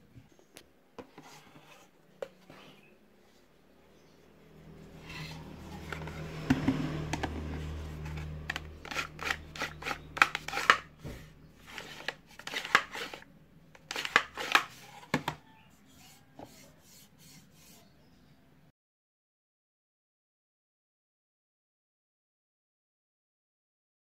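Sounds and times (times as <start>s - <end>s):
wood scraping and knocking: 5.0s - 13.2s, 13.8s - 15.5s.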